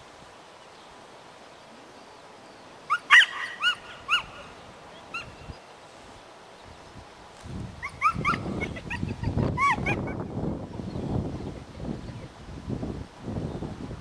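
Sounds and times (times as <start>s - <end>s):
dog yipping: 2.9s - 4.4s, 7.8s - 10.0s.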